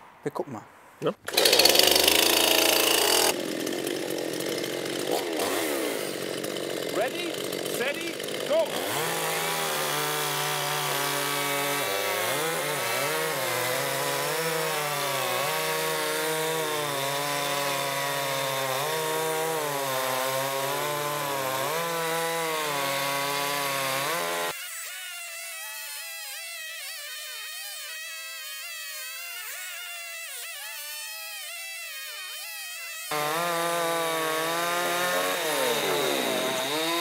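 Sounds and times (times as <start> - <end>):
chainsaw cutting a log: 1.2 - 37.0.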